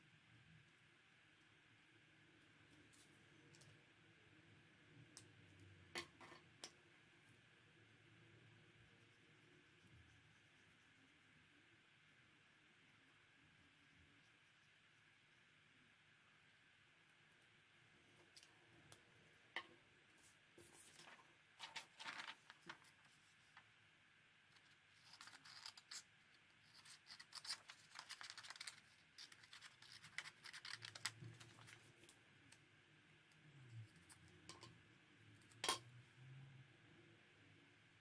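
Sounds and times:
paper rustling: 20.6s - 23.6s, 24.6s - 26.0s, 26.7s - 31.9s.

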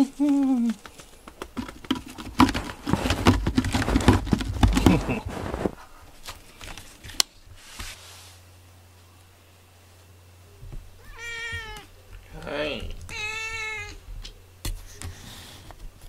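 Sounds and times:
cat scratching rope post: 0.8s - 5.8s.

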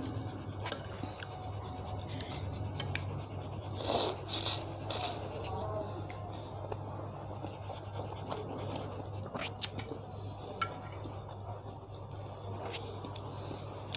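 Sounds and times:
person slurping noodles: 3.8s - 5.2s.

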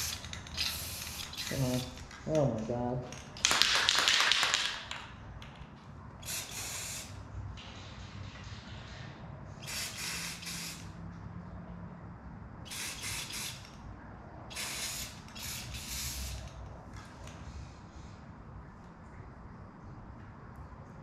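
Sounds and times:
spray paint can hissing: 0.0s - 2.0s, 6.2s - 7.2s, 9.6s - 10.9s, 12.7s - 13.7s, 14.5s - 16.6s.

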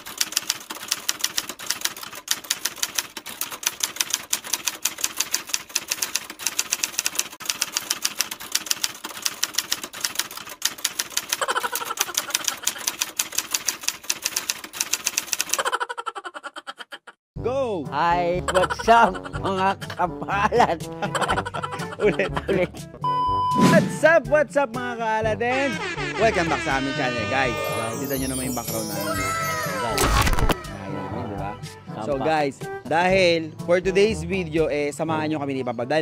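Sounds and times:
rapid clicking: 0.0s - 15.7s.

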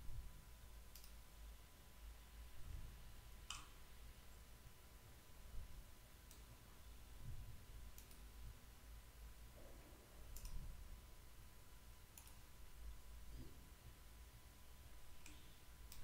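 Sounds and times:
low background hum: 0.0s - 16.0s
computer mouse clicks: 0.9s - 1.2s, 3.4s - 3.8s, 6.3s - 6.5s, 7.9s - 8.3s, 10.3s - 10.7s, 12.1s - 12.5s, 15.1s - 16.0s.

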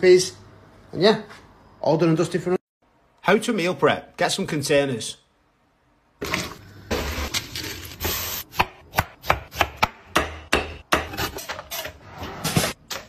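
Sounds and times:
knife chopping on wooden board: 8.5s - 11.3s.

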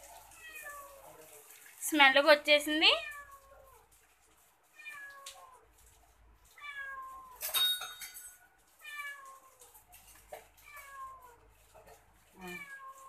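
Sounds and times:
cat meowing: 0.3s - 1.2s, 2.9s - 3.9s, 4.7s - 5.8s, 6.4s - 7.4s, 8.8s - 9.8s, 10.6s - 11.6s, 12.4s - 13.0s.

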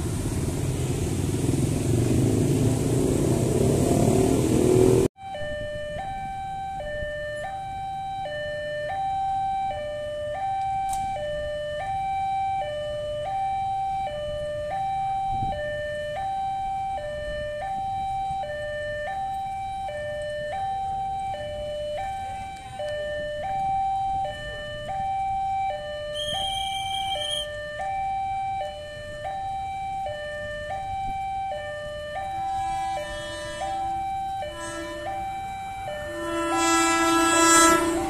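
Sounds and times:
level-crossing two-tone alarm: 5.2s - 38.0s.

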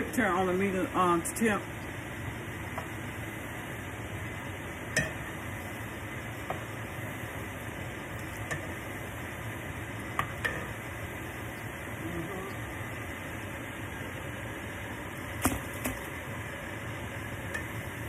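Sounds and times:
food sizzling in hot oil: 0.0s - 18.0s
metal spoon clinking on pan: 4.9s - 5.3s.

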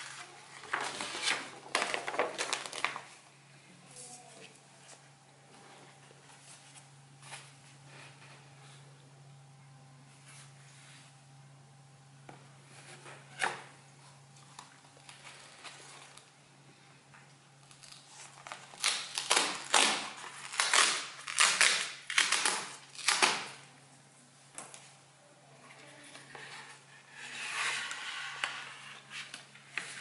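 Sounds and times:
cardboard scraping and rustling: 0.0s - 3.1s.

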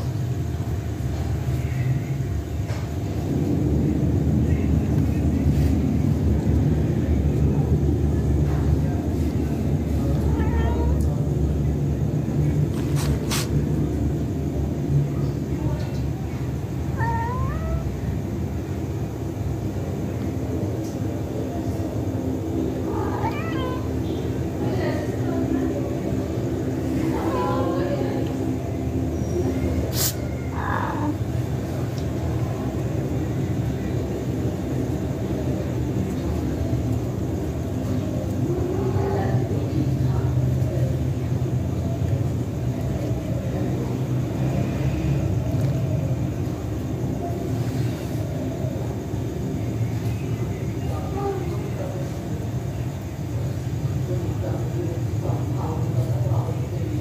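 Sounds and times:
cat meowing: 10.0s - 11.2s, 16.9s - 18.1s, 22.9s - 24.0s, 30.0s - 31.2s.

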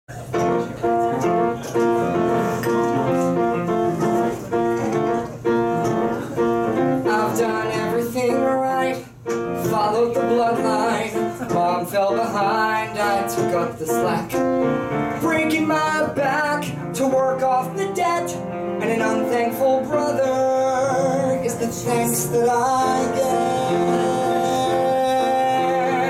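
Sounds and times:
piano chords: 0.1s - 26.0s
man singing: 7.0s - 26.0s.

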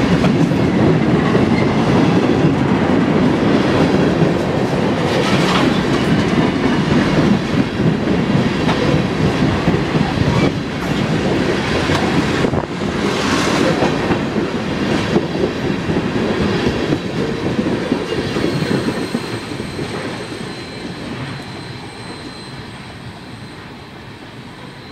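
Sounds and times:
freight train wheels on rails: 0.0s - 24.9s
faint high ringing: 19.3s - 24.9s.

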